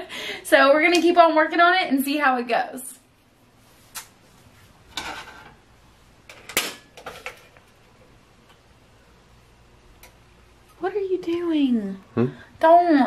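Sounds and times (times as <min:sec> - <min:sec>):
pans and utensils clattering: 0:04.9 - 0:05.6, 0:06.3 - 0:07.8.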